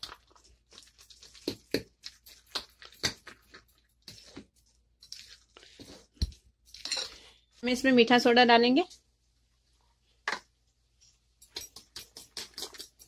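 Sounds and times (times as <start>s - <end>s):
spoon stirring wet batter: 0.0s - 7.6s, 8.9s - 13.0s.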